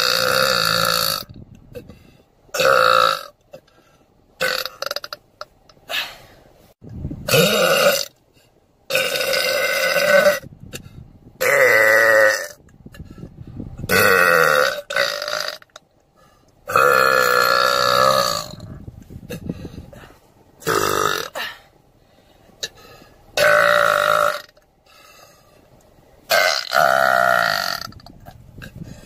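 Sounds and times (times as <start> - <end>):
woman burping loudly: 0.0 - 1.9, 2.5 - 3.4, 4.4 - 5.2, 7.3 - 8.2, 8.9 - 10.5, 11.4 - 12.6, 13.9 - 15.8, 16.7 - 19.4, 20.6 - 21.5, 23.4 - 24.6, 26.3 - 28.4.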